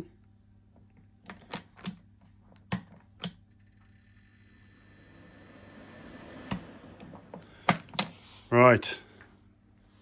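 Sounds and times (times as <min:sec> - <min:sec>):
electric fan whir: 0:01.0 - 0:08.7.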